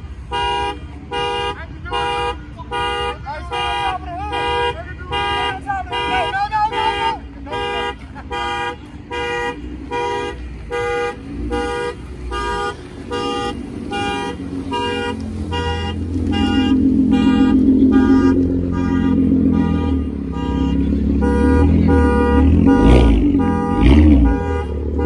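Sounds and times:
car horn honking: 0.0s - 25.0s
car exhaust pulling away: 9.6s - 25.0s.

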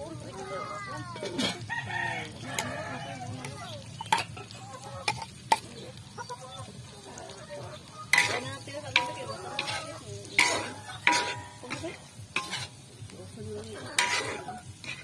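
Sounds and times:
food sizzling in a wok: 0.0s - 15.0s
metal spatula clinking on pan: 3.4s - 5.8s, 8.0s - 13.0s, 13.7s - 15.0s.

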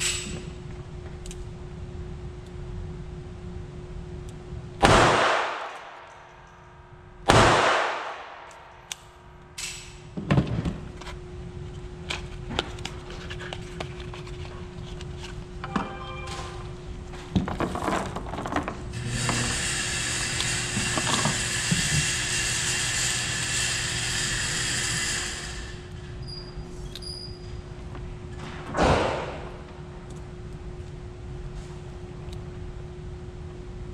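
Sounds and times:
steady hum: 0.0s - 33.9s
echoing gunshots indoors: 4.8s - 9.4s, 28.8s - 29.7s.

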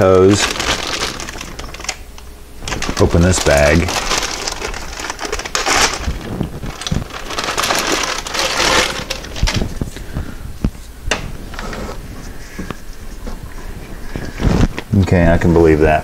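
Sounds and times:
plastic bag crinkling: 0.0s - 10.3s.

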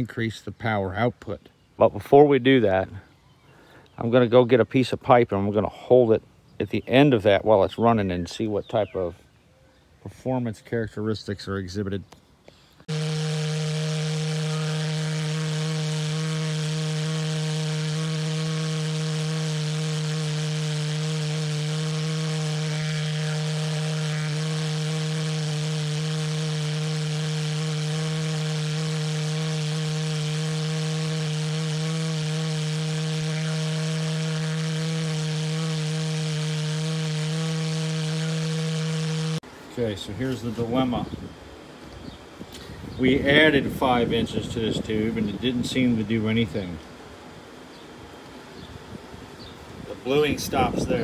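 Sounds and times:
pulse jet engine buzzing drone: 12.8s - 39.5s.

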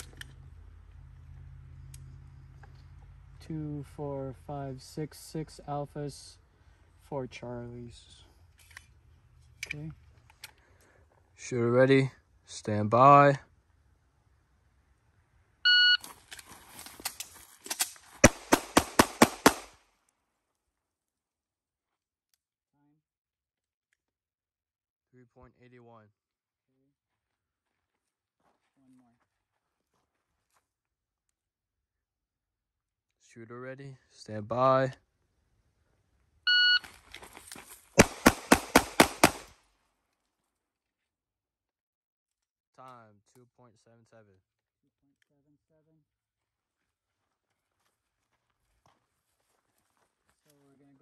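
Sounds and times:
pistol shots: 18.2s - 19.8s, 38.0s - 39.6s
shot timer beep: 36.5s - 36.8s.

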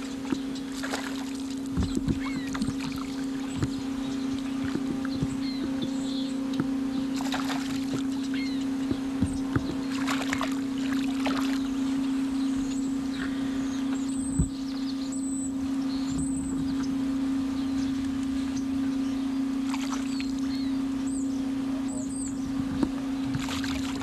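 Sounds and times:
electric trolling motor hum: 0.0s - 24.0s
knocks against hull: 0.3s - 3.8s, 8.8s - 10.6s.

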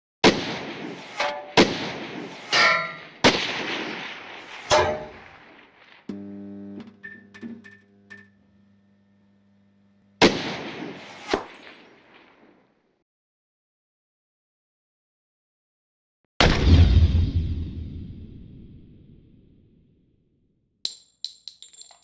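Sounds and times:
low electronic hum: 6.1s - 10.2s
loud cinematic hits: 16.4s - 19.5s.

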